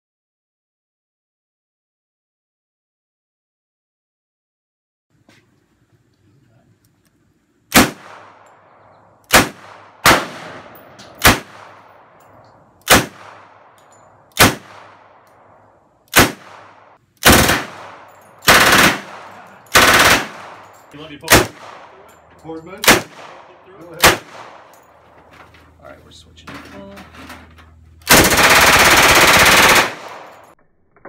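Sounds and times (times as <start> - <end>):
submachine gun shots and bursts: 7.7 - 8.4, 9.3 - 12.0, 12.8 - 15.2, 16.1 - 22.0, 22.8 - 23.4, 24.0 - 24.7, 28.0 - 30.6.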